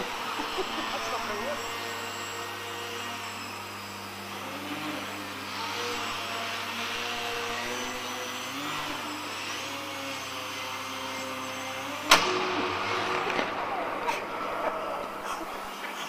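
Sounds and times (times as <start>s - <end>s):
model propeller and motor whining: 0.0s - 16.0s
constant low hum: 12.0s - 16.0s.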